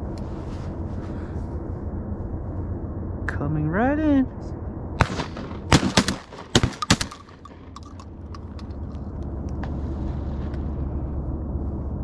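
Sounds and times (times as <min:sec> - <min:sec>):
rapid shotgun fire: 0:05.0 - 0:07.8.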